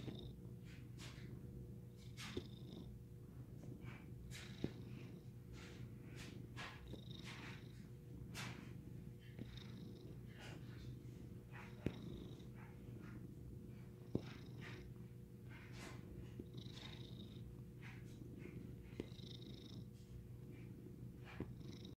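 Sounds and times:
cat purring: 0:00.0 - 0:21.9.

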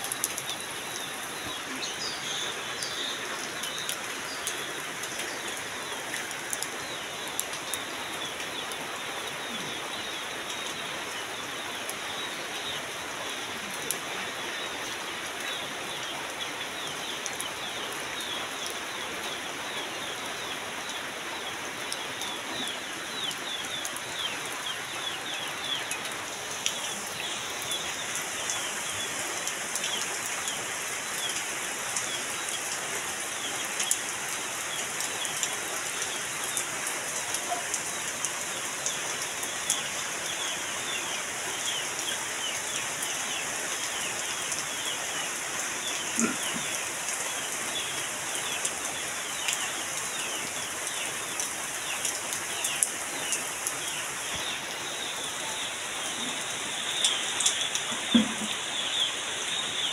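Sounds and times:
heavy rain on trees: 0:00.0 - 0:59.9
birds chirping: 0:14.5 - 0:59.9.

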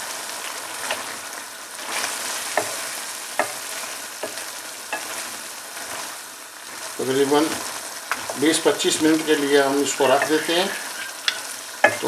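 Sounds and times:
meat sizzling in a pan: 0:00.0 - 0:12.0
spatula scraping a pan: 0:01.8 - 0:06.0, 0:08.1 - 0:12.0
spatula knocking against a pan: 0:11.2 - 0:12.0.

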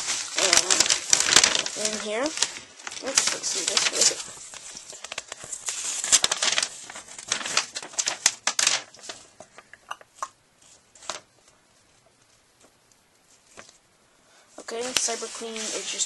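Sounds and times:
plastic mailer crinkling: 0:00.0 - 0:09.7, 0:11.0 - 0:11.4.

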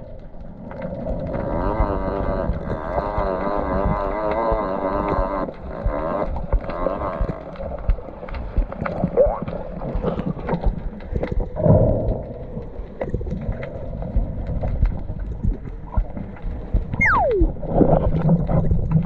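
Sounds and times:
muffled underwater rumble: 0:00.0 - 0:19.0
sharp little underwater clicks: 0:00.3 - 0:19.0
high squeal sliding down: 0:17.0 - 0:17.5.

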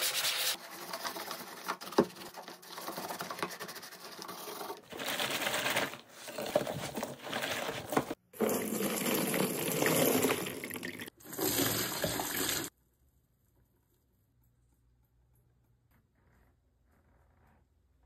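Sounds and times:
water splashing in bucket: 0:04.9 - 0:12.7.

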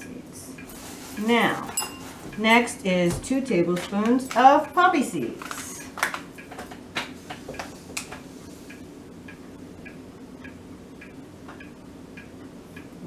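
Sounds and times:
low steady hum: 0:00.0 - 0:13.0
clock ticking: 0:02.4 - 0:06.5, 0:08.7 - 0:13.0.

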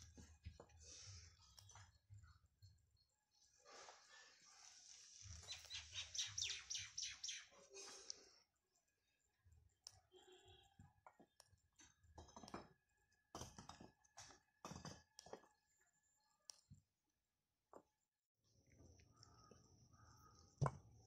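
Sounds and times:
bird chirping: 0:01.4 - 0:08.0.

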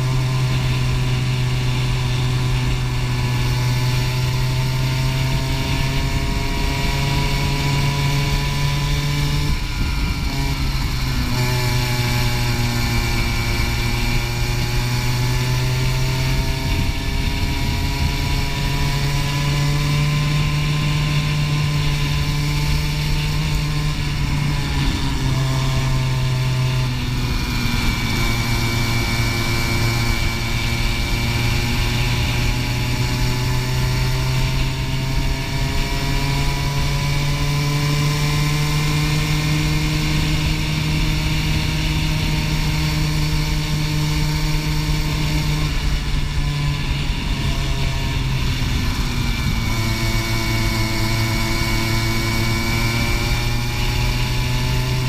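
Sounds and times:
kart engine revving: 0:00.0 - 0:55.0.

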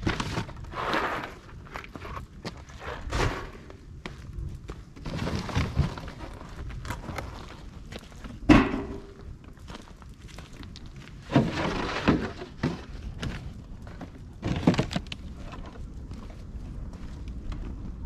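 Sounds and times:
footsteps on gravel: 0:06.1 - 0:14.4
box thudding into metal drum: 0:08.4 - 0:09.2.

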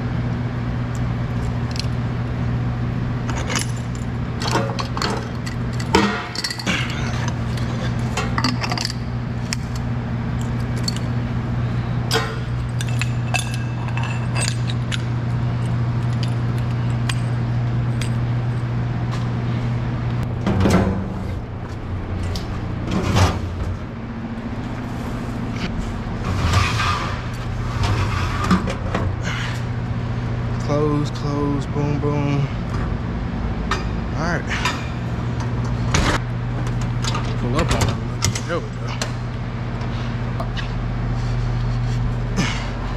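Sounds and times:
low machine hum: 0:00.0 - 0:42.9
metal hose fittings clinking: 0:12.1 - 0:18.2.

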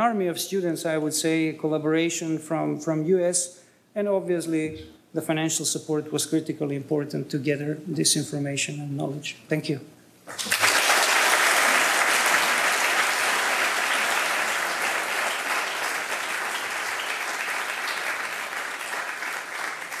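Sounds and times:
large audience applauding: 0:10.3 - 0:20.0.

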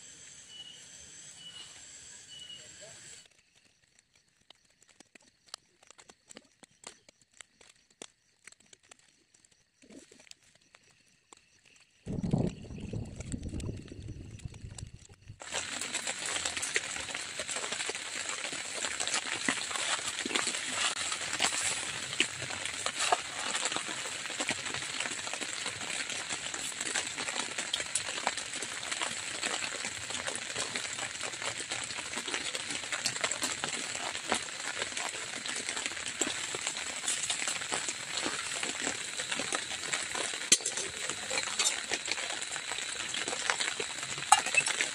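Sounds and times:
rain pattering on a tent: 0:03.2 - 0:44.9
low rumble: 0:12.1 - 0:15.4.

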